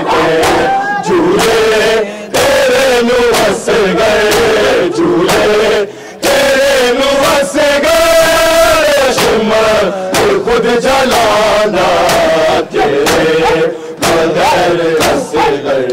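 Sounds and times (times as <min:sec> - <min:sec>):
men chanting together: 0:00.0 - 0:15.9
hands slapping chests: 0:00.4 - 0:00.8, 0:03.3 - 0:05.6, 0:09.1 - 0:09.4, 0:12.0 - 0:15.9.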